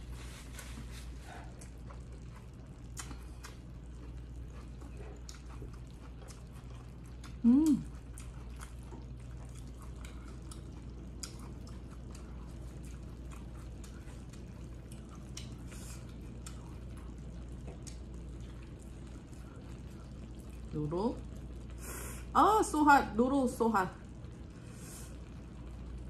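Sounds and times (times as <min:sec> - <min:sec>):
steady low hum: 0:00.0 - 0:26.0
wet chewing: 0:00.1 - 0:20.7.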